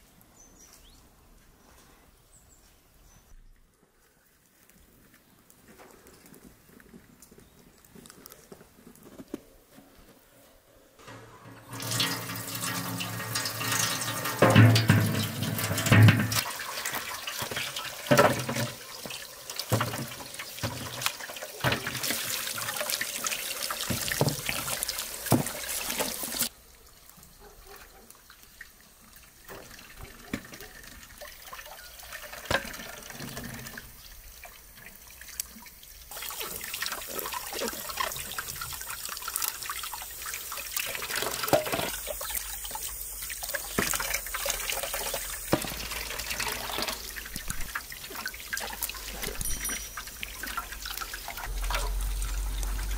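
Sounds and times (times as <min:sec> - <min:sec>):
tap water running and splashing: 0:11.0 - 0:52.9.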